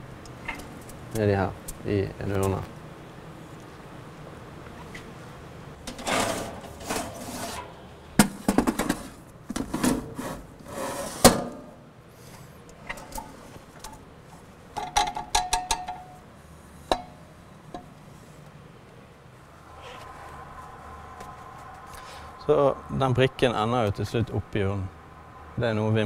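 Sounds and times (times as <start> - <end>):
metal clanks and scrapes: 5.8 - 11.7, 12.8 - 14.0.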